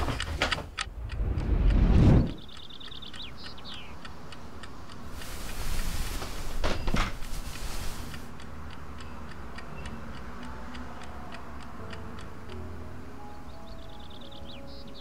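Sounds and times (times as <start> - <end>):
low hum: 0.0 - 3.2
clock ticking: 0.0 - 5.6, 8.2 - 13.1.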